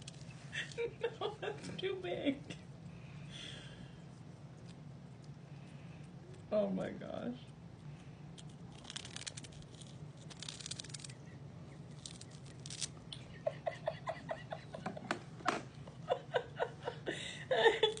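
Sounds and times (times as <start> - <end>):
kitten crunching and chewing: 3.9 - 6.5, 7.4 - 13.4.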